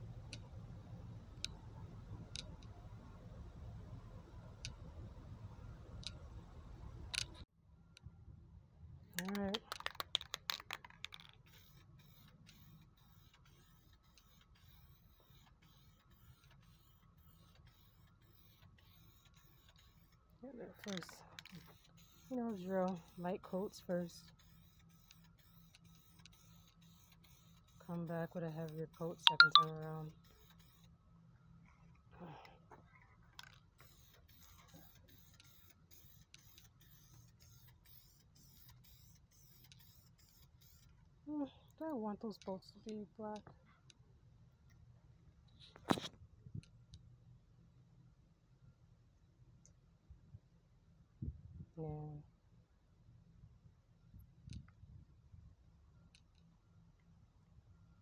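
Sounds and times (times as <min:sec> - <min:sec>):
spray can ball rattling: 0:09.2 - 0:20.1, 0:20.8 - 0:28.6, 0:33.4 - 0:40.9
spray paint hissing: 0:11.4 - 0:20.2, 0:20.8 - 0:29.2, 0:30.2 - 0:30.9, 0:33.8 - 0:40.9.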